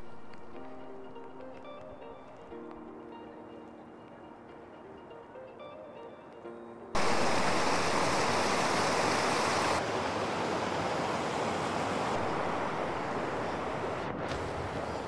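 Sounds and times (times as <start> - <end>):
stream rushing over rocks: 7.0 - 15.0.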